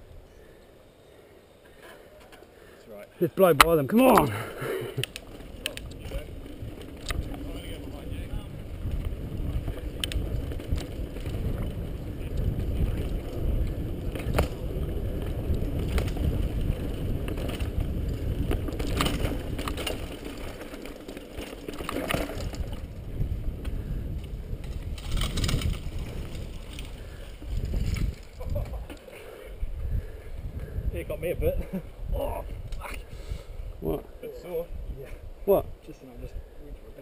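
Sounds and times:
tyres on dirt: 1.6 - 29.6
bike rattles and clicks: 3.4 - 31.9
wind rumble on microphone: 5.3 - 20.7, 21.4 - 37.0.

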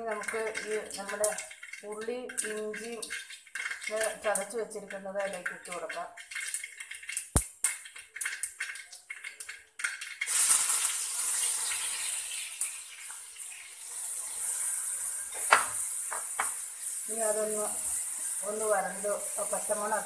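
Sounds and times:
mustard seeds popping in oil: 0.0 - 13.4, 15.3 - 20.0
onion sizzling in hot oil: 0.0 - 20.0.

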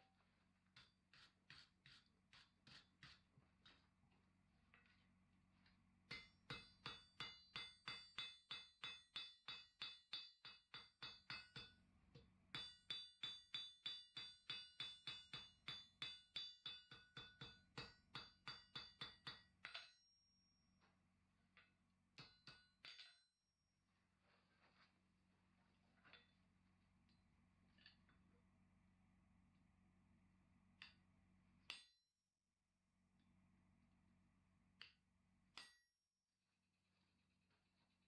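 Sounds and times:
hammer ringing on anvil: 6.1 - 11.8.

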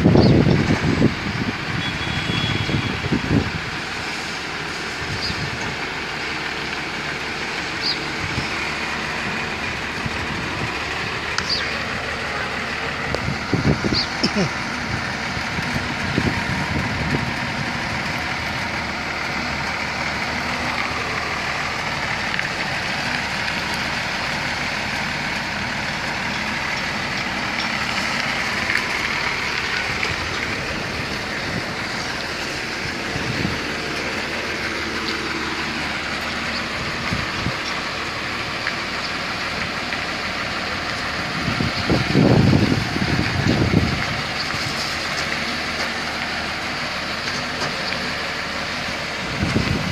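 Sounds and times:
truck diesel engine running: 0.0 - 49.9.

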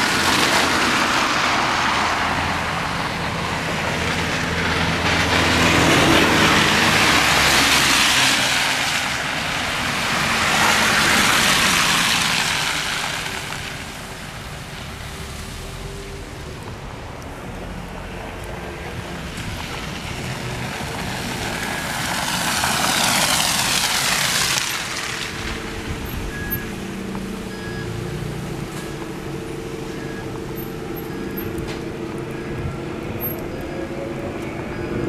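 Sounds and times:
tyres hissing through snow: 0.0 - 16.2, 19.0 - 30.2
car engine rumble: 0.0 - 35.0.

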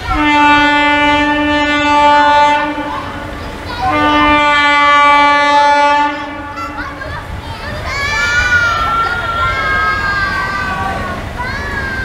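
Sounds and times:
locomotive horn blasts: 0.0 - 6.8.

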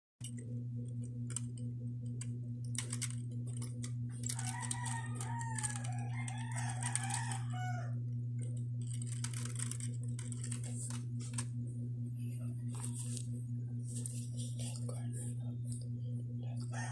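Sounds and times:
steady low hum: 0.2 - 16.9
rooster crowing: 4.2 - 8.1, 16.6 - 16.9.

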